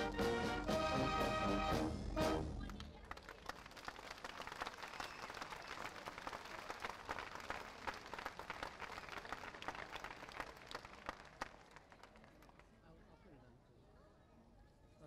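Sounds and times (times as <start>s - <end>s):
brass band final chord: 0.0s - 2.6s
crowd applauding: 2.6s - 12.7s.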